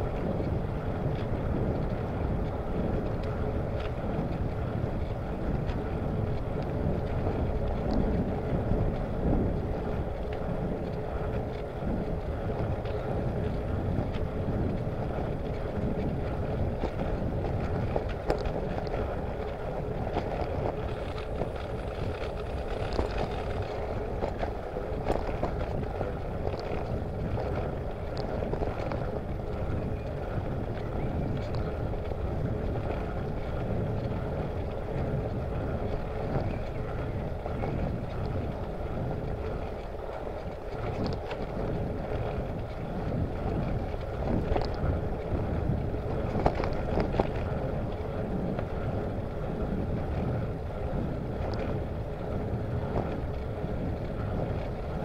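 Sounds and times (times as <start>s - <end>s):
wind rushing over microphone: 0.0s - 55.0s
small clicks and rattles: 17.6s - 25.8s
tyre and road noise: 18.9s - 27.0s.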